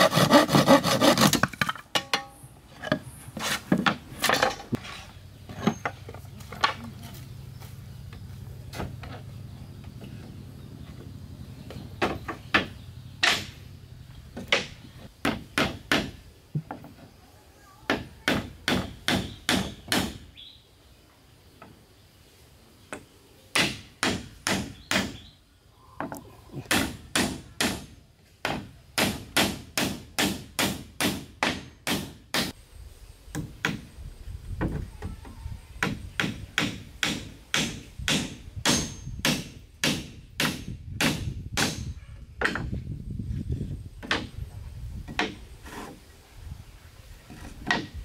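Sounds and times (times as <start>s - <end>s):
hatchet striking wooden boards: 12.0s - 13.6s, 14.4s - 16.8s, 17.9s - 20.2s, 23.5s - 25.2s, 26.7s - 32.5s, 35.8s - 42.8s, 45.1s - 45.4s, 47.6s - 48.0s.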